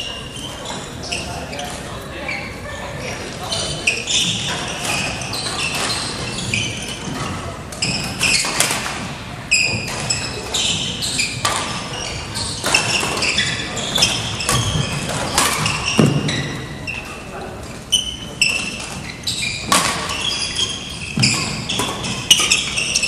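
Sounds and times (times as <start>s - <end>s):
shoes squeaking on gym floor: 0.0s - 23.0s
racket hitting shuttlecock: 12.6s - 16.6s, 19.6s - 20.2s.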